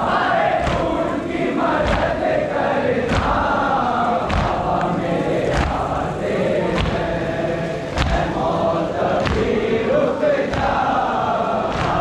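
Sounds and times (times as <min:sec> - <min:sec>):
crowd chanting in unison: 0:00.0 - 0:12.0
chest-beating slaps: 0:04.3 - 0:04.8, 0:08.0 - 0:08.4, 0:09.2 - 0:09.6, 0:11.7 - 0:12.0.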